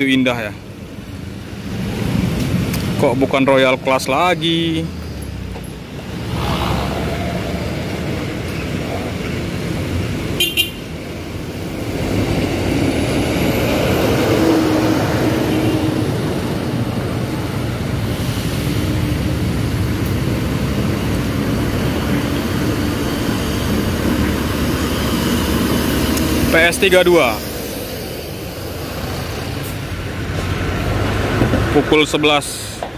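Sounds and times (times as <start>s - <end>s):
bus engine driving past: 4.4s - 32.9s
horn toot: 10.4s - 10.9s.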